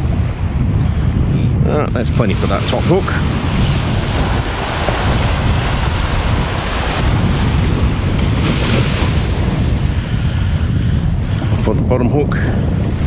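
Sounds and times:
heavy low rumble: 0:00.0 - 0:13.0
wind buffeting microphone: 0:00.0 - 0:13.0
small waves breaking: 0:02.2 - 0:10.6.

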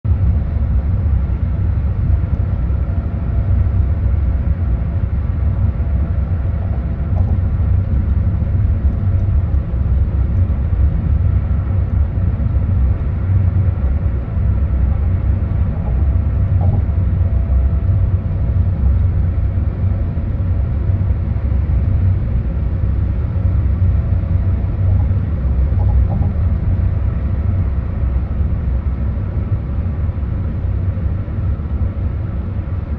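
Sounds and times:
tyre and road rumble: 0:00.0 - 0:31.8.

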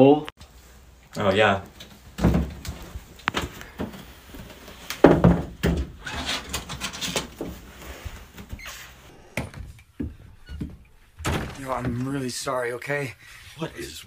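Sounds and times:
knocks and bumps: 0:02.1 - 0:04.1, 0:05.0 - 0:12.2
wooden cupboard door opening: 0:08.3 - 0:12.2.

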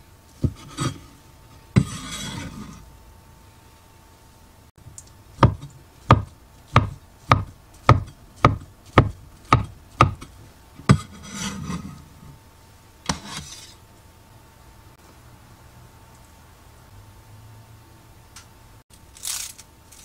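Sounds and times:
blade scraping board: 0:00.4 - 0:01.2, 0:01.8 - 0:02.9, 0:10.2 - 0:12.4, 0:13.0 - 0:13.8
cleaver chopping on wooden board: 0:05.4 - 0:10.3.

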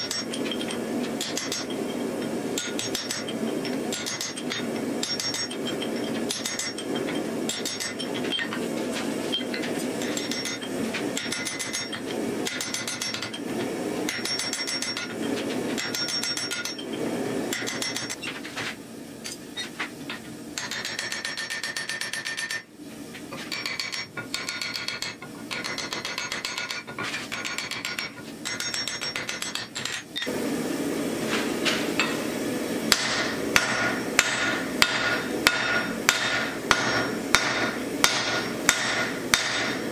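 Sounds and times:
hammer striking steel on anvil: 0:00.0 - 0:01.7, 0:02.6 - 0:08.4, 0:09.4 - 0:13.4, 0:14.1 - 0:15.2, 0:15.8 - 0:16.8, 0:17.5 - 0:18.2, 0:20.6 - 0:22.6, 0:23.5 - 0:30.3, 0:32.9 - 0:39.9.

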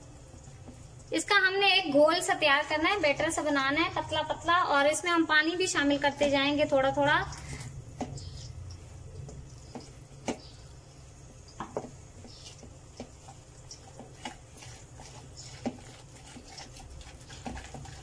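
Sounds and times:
hand squeezing thick batter: 0:05.7 - 0:18.0.

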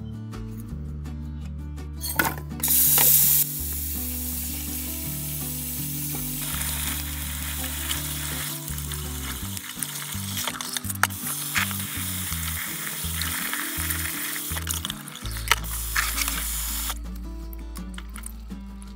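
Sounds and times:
soft background music: 0:00.0 - 0:18.9
hands rubbing roots in water: 0:06.3 - 0:16.9.

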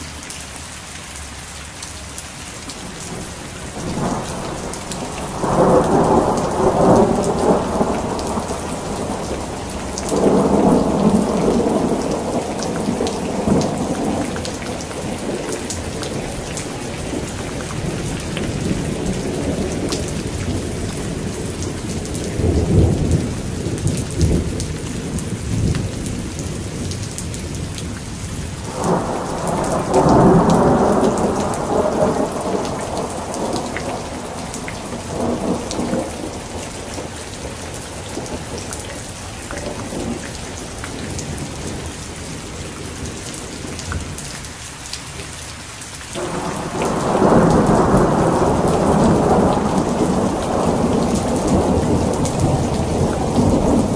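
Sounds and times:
heavy rain falling: 0:00.0 - 0:53.9
thunder rolling: 0:02.9 - 0:20.8, 0:28.7 - 0:38.8, 0:46.2 - 0:53.9.

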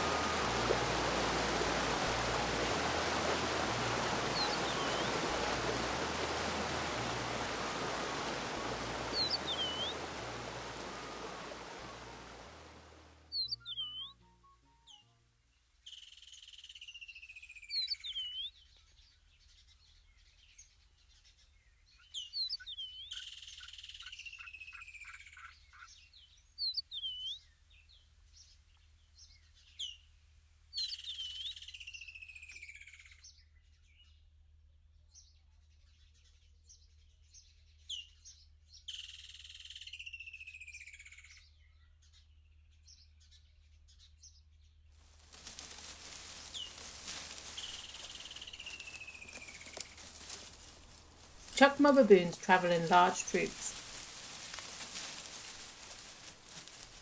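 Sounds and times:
bird descending call: 0:07.5 - 0:12.4.

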